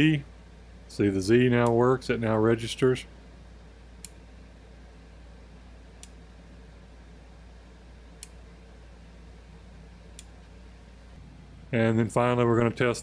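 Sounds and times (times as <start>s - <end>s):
faint low hum: 0.0s - 13.0s
limit switch clicking: 1.6s - 1.8s, 4.0s - 4.2s.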